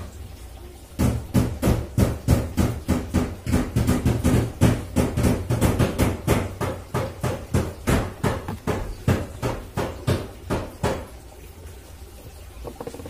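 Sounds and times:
rapid hammer taps on metal: 1.0 - 11.1.

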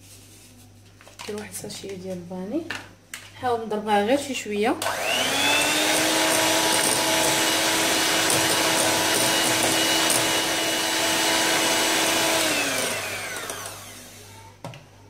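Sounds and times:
electric hand mixer whisking: 4.8 - 14.4.

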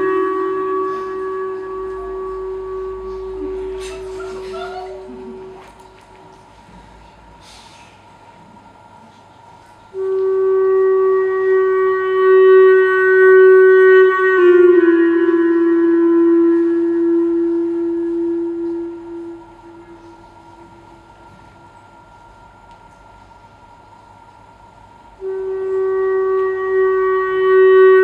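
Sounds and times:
long held wind instrument note: 0.0 - 6.7, 9.9 - 21.8, 25.1 - 28.0.

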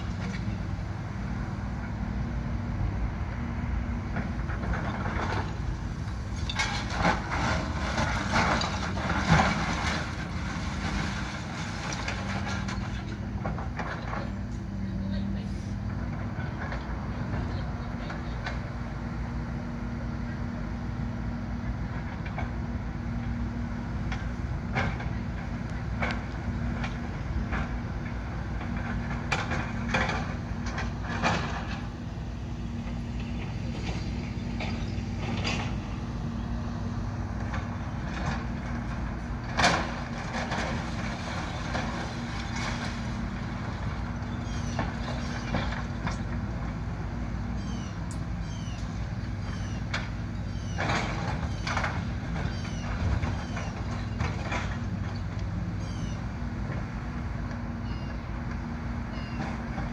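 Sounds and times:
excavator diesel engine running: 0.0 - 59.9
debris clanking and crashing: 6.4 - 14.2, 38.0 - 44.2.

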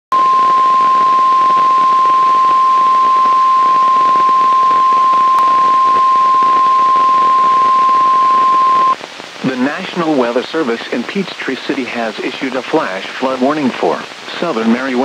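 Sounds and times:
steady alarm tone: 0.1 - 9.0
radio hiss: 0.1 - 15.0.

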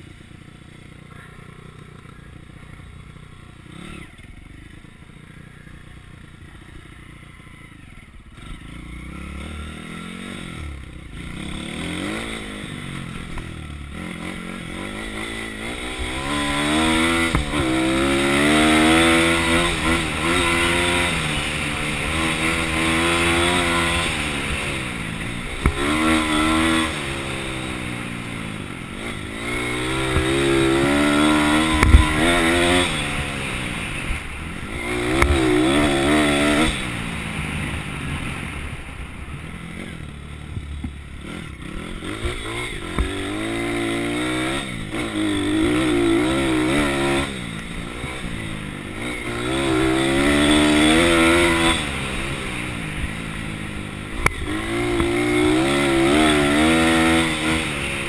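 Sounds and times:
pit bike engine revving: 0.0 - 58.0
sharp thump: 17.2 - 17.8, 31.7 - 32.4.

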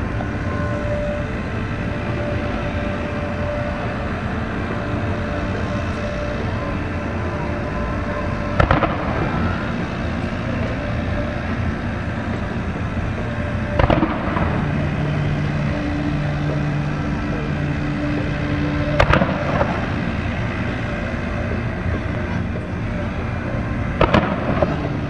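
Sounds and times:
steady low hum: 0.0 - 25.0
fireworks bursting with echoing rumble: 8.6 - 9.5, 13.3 - 15.3, 18.9 - 19.9, 23.9 - 25.0.

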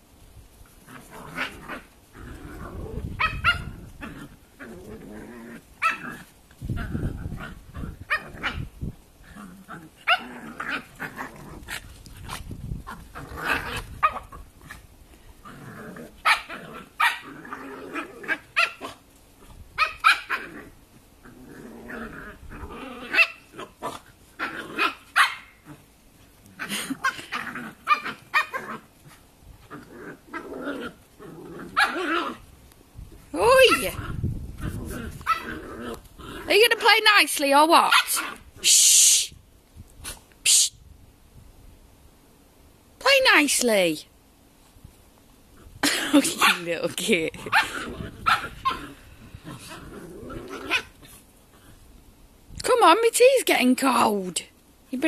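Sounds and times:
dogs barking and growling: 0.7 - 32.6, 33.4 - 37.0, 37.8 - 38.6, 45.5 - 51.9.

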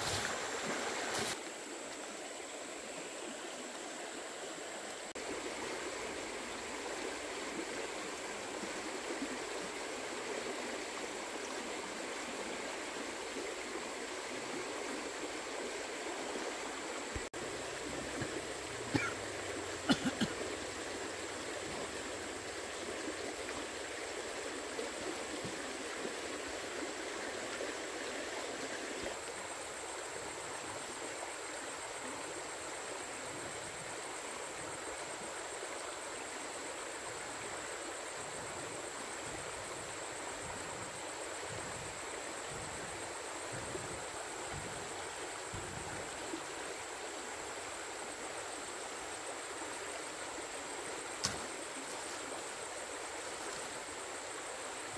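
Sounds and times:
flowing water rushing: 0.0 - 54.9.

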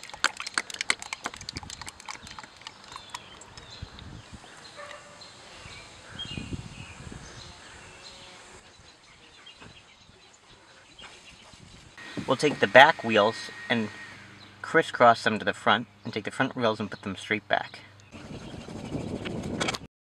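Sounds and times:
oil glugging into funnel: 0.0 - 3.8.

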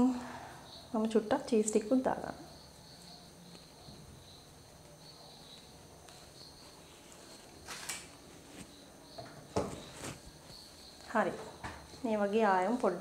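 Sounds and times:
insect chirping: 0.0 - 13.0
soft rustle: 4.8 - 9.0, 9.6 - 11.1.

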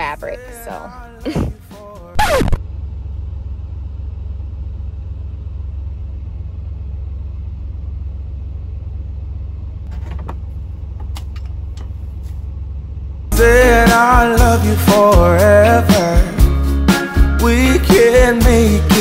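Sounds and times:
truck engine idling: 0.0 - 19.0.

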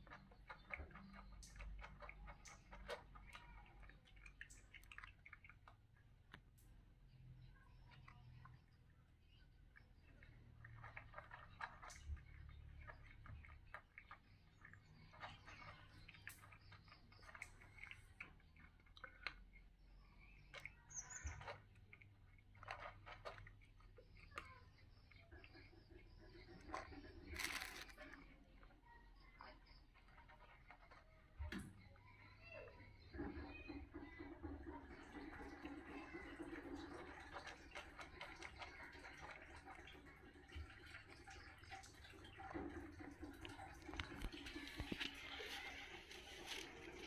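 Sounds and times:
cat crunching dry kibble: 26.7 - 28.3.

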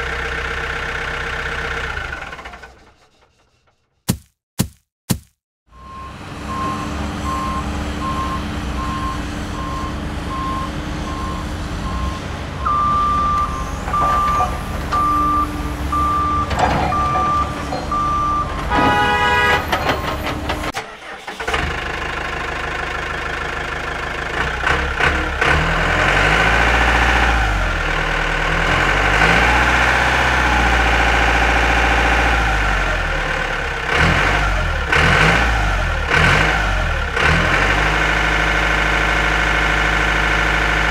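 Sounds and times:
engine rumble: 5.7 - 40.9
reversing alarm beeping: 5.8 - 20.2
engine revving: 24.2 - 40.9.

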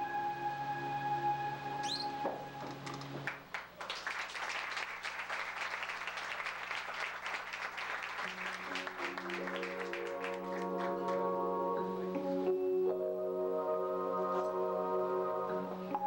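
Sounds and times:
audience applauding: 2.7 - 11.4
musical chords: 8.6 - 16.0.

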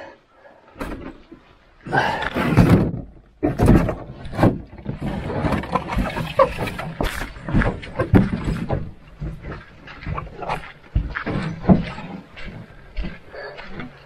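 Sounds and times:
strained grunting breaths: 1.8 - 2.7
canoe knocking and rubbing: 2.0 - 13.1.

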